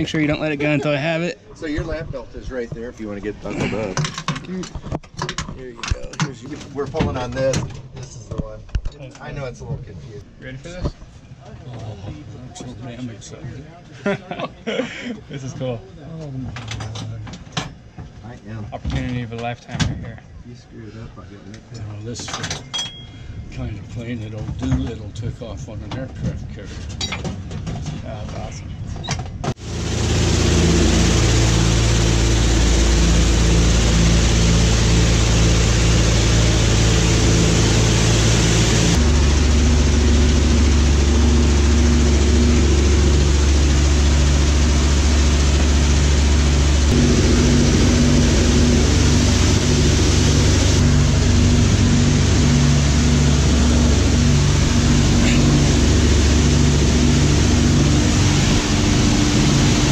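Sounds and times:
aircraft engines droning: 29.6 - 59.9.

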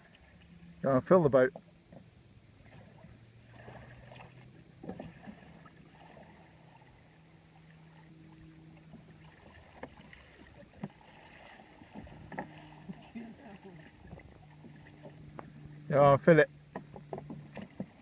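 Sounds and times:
water lapping around canoe: 0.0 - 0.8, 1.4 - 18.0
paddle knocking against hull: 3.6 - 6.3, 8.8 - 13.2, 13.8 - 15.8, 16.7 - 18.0.

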